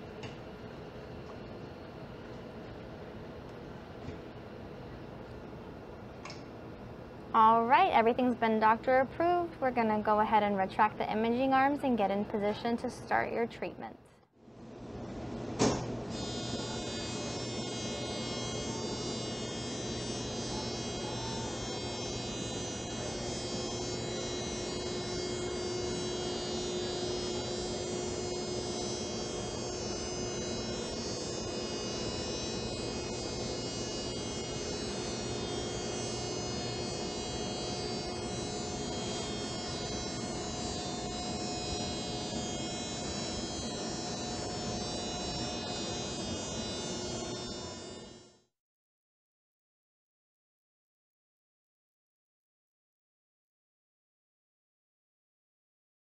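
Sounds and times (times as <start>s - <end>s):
electrical hum and whine: 0.0s - 48.5s.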